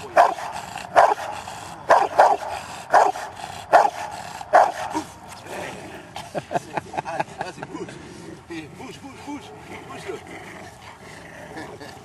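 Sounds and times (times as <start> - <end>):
dog barking: 0.1 - 1.3, 1.9 - 5.1.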